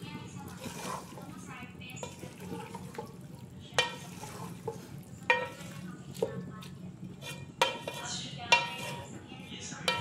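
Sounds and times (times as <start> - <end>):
low steady hum: 0.0 - 10.0
spoon knocking against pot: 7.3 - 9.0.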